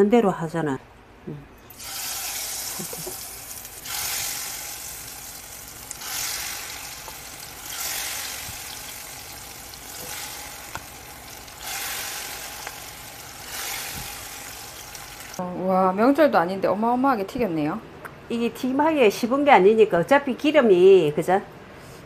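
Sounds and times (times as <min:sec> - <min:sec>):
shrimp deep-frying in oil: 0:01.7 - 0:15.4.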